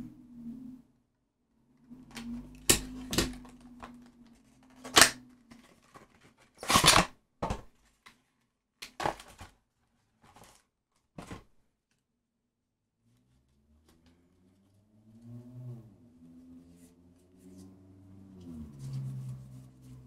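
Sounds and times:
cards and packaging rustling: 0:02.1 - 0:11.6.

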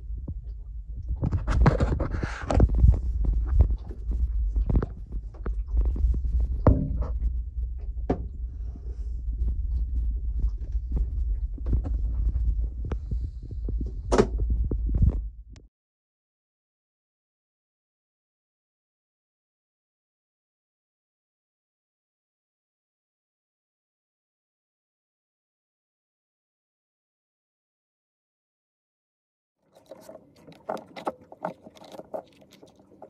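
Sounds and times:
low rumble: 0:00.0 - 0:15.7
knocks and thumps: 0:00.2 - 0:08.4, 0:09.5 - 0:15.3.

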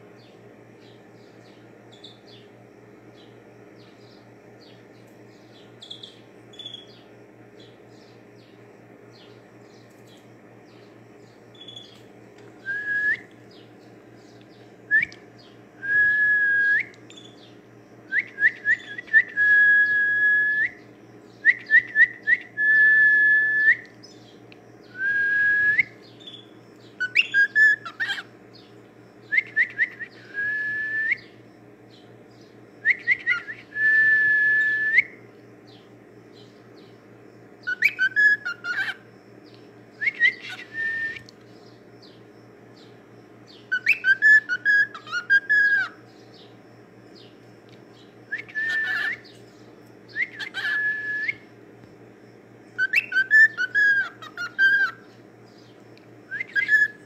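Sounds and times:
low steady hum: 0:00.0 - 0:57.0
cockatiel whistling: 0:18.1 - 0:20.8, 0:27.0 - 0:28.2, 0:29.3 - 0:31.3, 0:32.8 - 0:35.2, 0:37.7 - 0:39.0, 0:40.0 - 0:41.3, 0:43.7 - 0:46.0, 0:48.3 - 0:49.3, 0:50.1 - 0:51.4, 0:52.8 - 0:55.0, 0:56.3 - 0:57.0.

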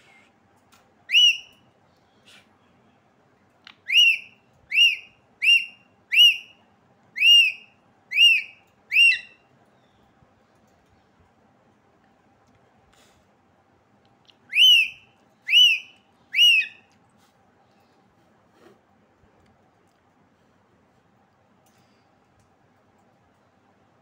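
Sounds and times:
parakeet whistling: 0:01.1 - 0:01.5, 0:03.8 - 0:06.6, 0:07.2 - 0:09.4, 0:14.5 - 0:16.8.

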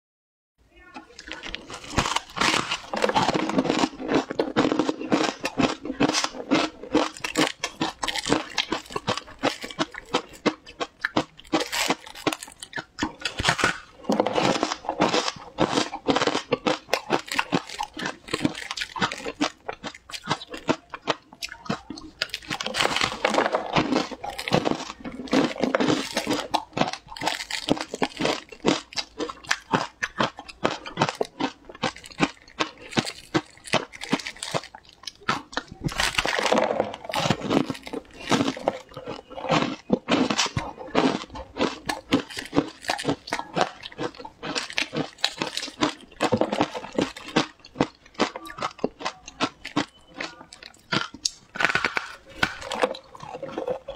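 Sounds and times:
chewing crunchy shaved ice: 0:00.8 - 0:53.9.

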